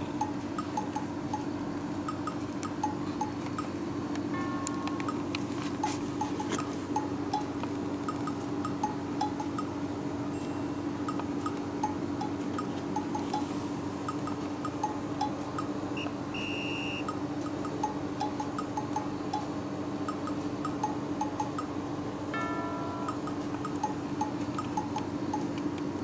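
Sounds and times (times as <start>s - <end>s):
steady low tone: 4.3s - 16.5s, 17.4s - 25.0s
chiming background music: 10.3s - 11.0s.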